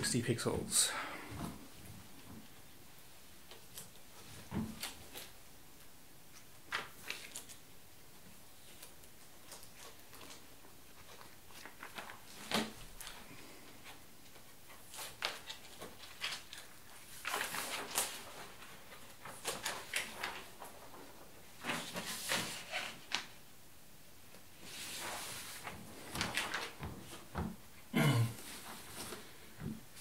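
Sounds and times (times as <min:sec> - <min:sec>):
plastic wrap and cardboard rustling: 0:08.4 - 0:23.4, 0:24.5 - 0:27.6, 0:28.4 - 0:30.0.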